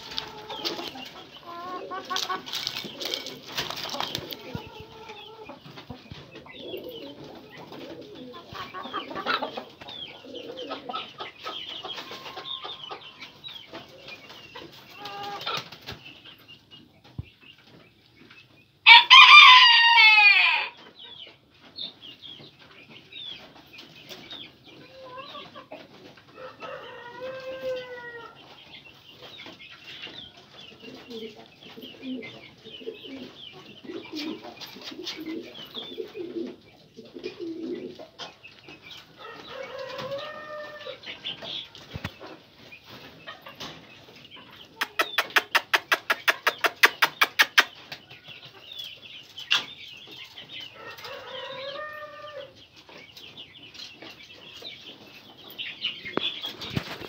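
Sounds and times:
pigeons cooing: 0.0 - 15.7, 30.2 - 42.5
chickens clucking: 0.0 - 57.0
rooster crowing: 18.9 - 20.8.

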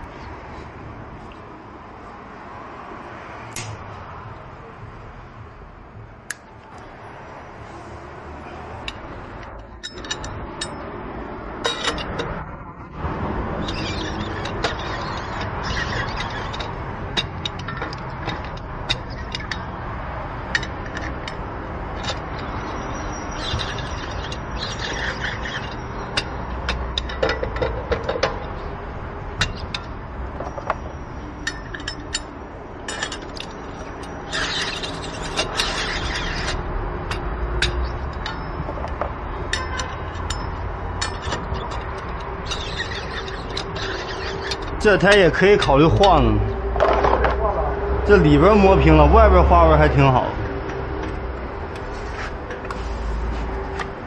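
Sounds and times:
steady background noise: 0.0 - 54.0
lug wrench clicking on lug nuts: 8.8 - 11.0, 11.6 - 12.4, 13.6 - 46.2.

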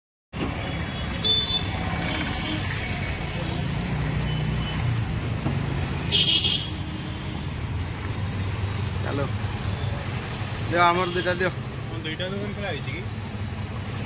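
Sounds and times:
traffic rumble: 0.3 - 14.0.

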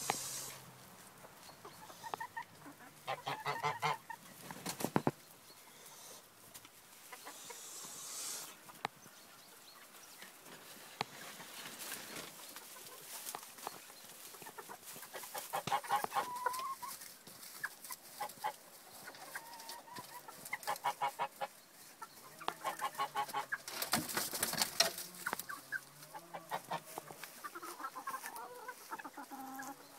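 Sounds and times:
chickens clucking: 0.0 - 29.9.

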